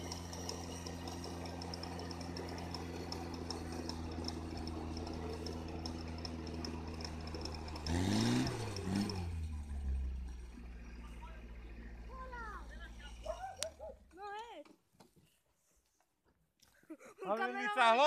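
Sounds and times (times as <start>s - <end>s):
winch humming and clicking: 0.0s - 10.8s.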